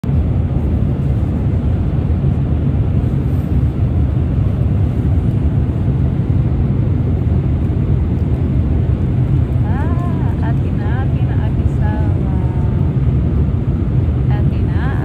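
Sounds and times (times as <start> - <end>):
rushing air: 0.0 - 10.4
jet engines droning: 0.0 - 15.0.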